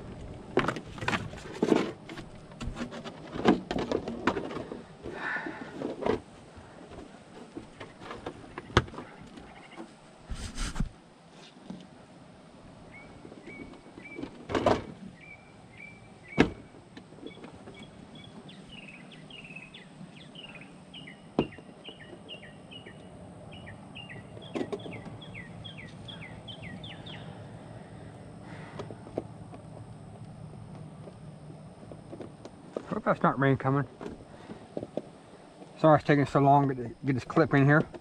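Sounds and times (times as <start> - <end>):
bird chirping: 12.9 - 14.2, 15.2 - 16.5, 17.2 - 27.4.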